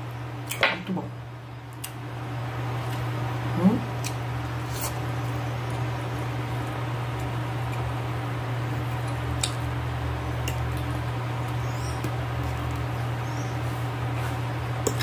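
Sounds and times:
steady low hum: 0.0s - 15.0s
chewing meat: 3.9s - 15.0s.

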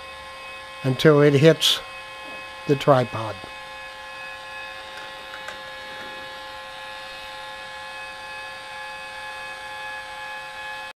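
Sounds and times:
motors whining: 2.1s - 7.4s.

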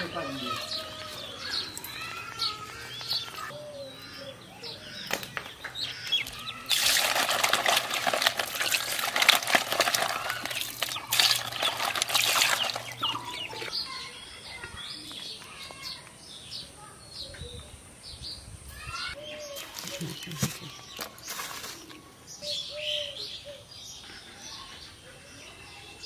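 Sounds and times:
birds chirping: 0.0s - 26.0s
fish splashing in basket: 6.3s - 13.5s.

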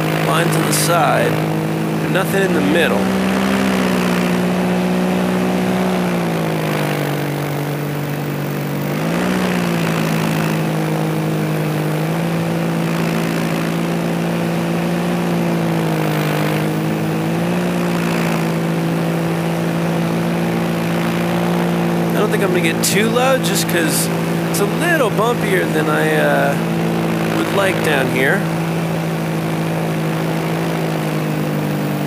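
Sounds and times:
paramotor engine and propeller: 0.0s - 32.0s.

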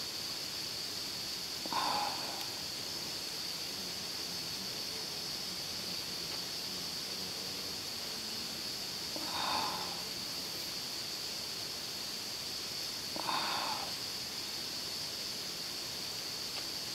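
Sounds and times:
high-pitched hiss: 0.0s - 16.9s
breathy puffs of air: 1.6s - 2.7s, 9.2s - 10.1s, 13.2s - 14.0s.

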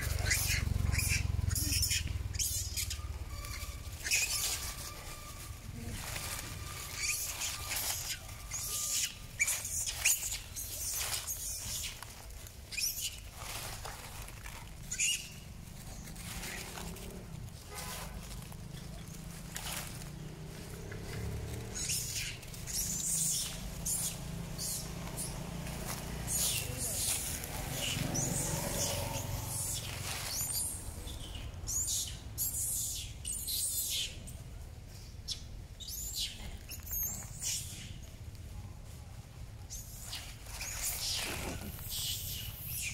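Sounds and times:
high-pitched chirping calls: 0.0s - 13.7s, 21.6s - 34.2s
monkeys squeaking: 0.0s - 17.0s, 20.9s - 34.1s, 35.3s - 38.0s, 39.7s - 42.9s
dry leaves rustling and crackling: 0.0s - 42.9s
low rumble: 15.4s - 32.4s.

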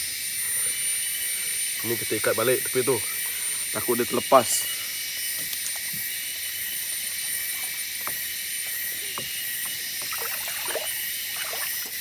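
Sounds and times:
jungle insects chorus: 0.0s - 12.0s
water sloshing and splashing: 10.0s - 12.0s.

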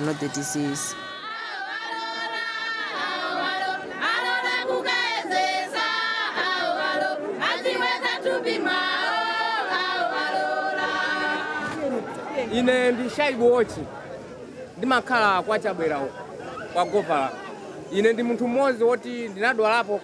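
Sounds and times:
women's choir singing: 0.0s - 12.3s.

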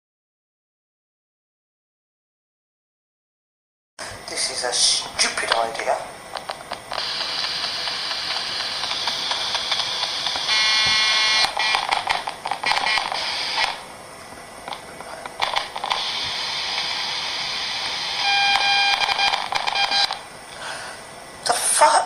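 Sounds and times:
radio static hiss with crackles: 4.0s - 20.8s
buzzing beep tone: 10.4s - 11.9s, 12.6s - 13.8s, 18.0s - 20.2s.

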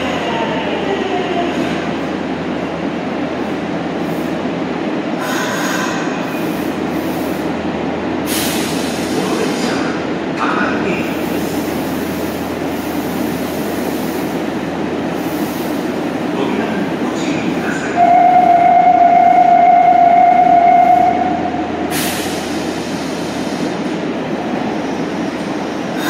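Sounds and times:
subway train rumbling: 0.0s - 26.0s.

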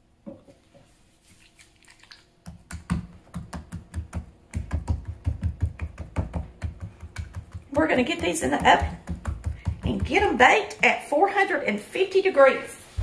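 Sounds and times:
fingers patting cream on dough: 2.4s - 10.9s.

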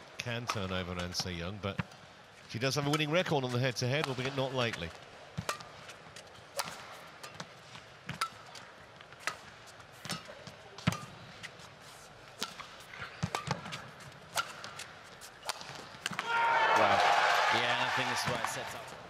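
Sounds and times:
racket striking shuttlecock: 5.4s - 11.2s, 12.3s - 16.4s.

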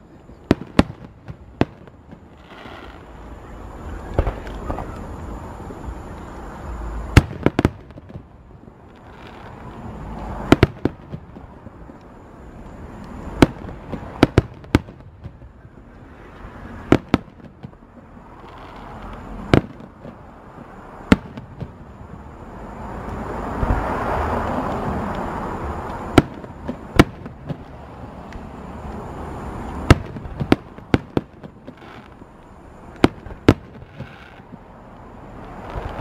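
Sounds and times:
firework shells bursting: 29.7s - 32.3s.

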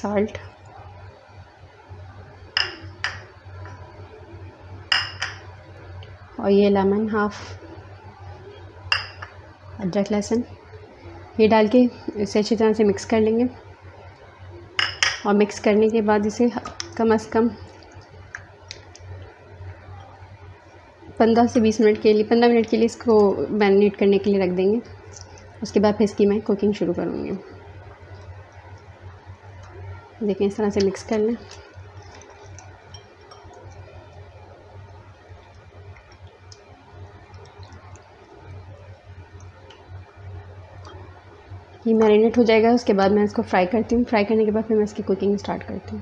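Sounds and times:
faint room noise: 0.0s - 46.0s
low steady hum: 0.0s - 46.0s
wet squishing of hands mixing meat: 24.9s - 25.7s, 27.8s - 41.4s.

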